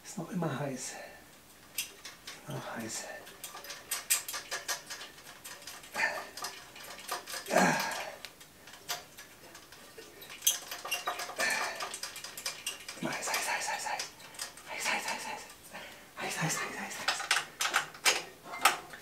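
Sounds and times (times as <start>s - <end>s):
metal clinking and ticking: 1.4s - 15.6s
metal clatters: 1.6s - 15.3s.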